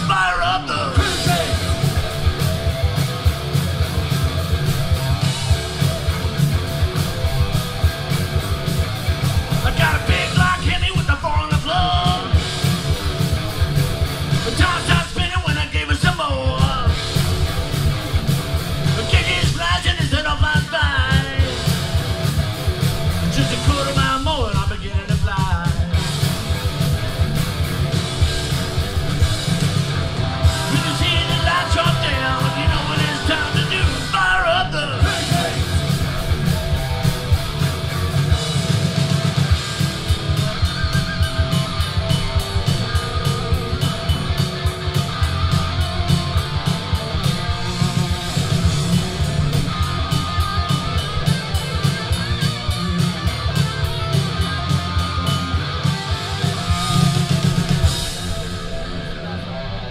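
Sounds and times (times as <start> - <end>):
person singing: 0.0 - 1.9, 9.6 - 12.4, 30.4 - 36.0
live rock band: 0.0 - 59.9.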